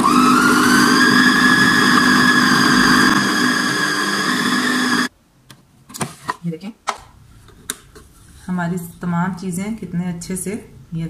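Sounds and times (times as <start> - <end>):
food chopper motor whine: 0.0 - 5.1.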